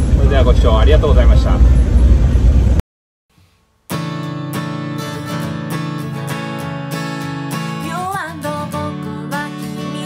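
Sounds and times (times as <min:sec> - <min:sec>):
acoustic guitar strumming: 0:03.4 - 0:10.0
woman singing: 0:07.8 - 0:10.0.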